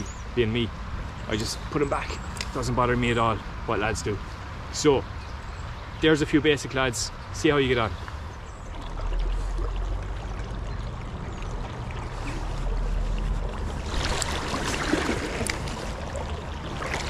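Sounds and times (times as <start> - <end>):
small river flowing: 8.2 - 17.0.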